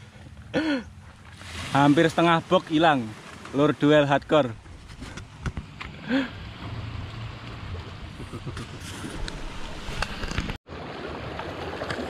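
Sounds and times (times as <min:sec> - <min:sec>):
waves washing on pebbles: 0:01.4 - 0:04.4
wind on microphone: 0:07.6 - 0:10.6.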